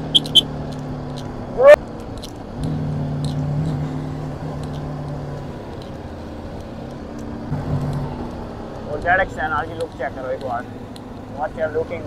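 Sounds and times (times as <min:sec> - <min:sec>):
motorcycle engine running: 0:00.0 - 0:01.8
wind and road rush: 0:00.0 - 0:12.0.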